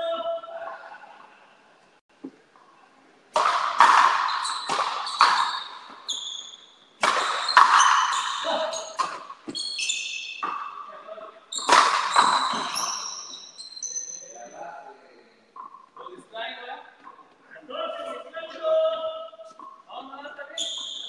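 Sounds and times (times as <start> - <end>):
ball bouncing on court: 3.3 - 10.8, 11.5 - 13.5
ball hitting rackets and wall: 3.3 - 13.6.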